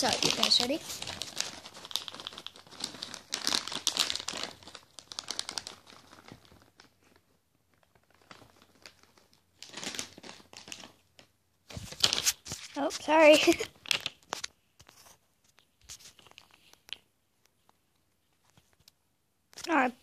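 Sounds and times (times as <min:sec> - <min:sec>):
plastic treat pouch shaking: 0:00.0 - 0:07.0.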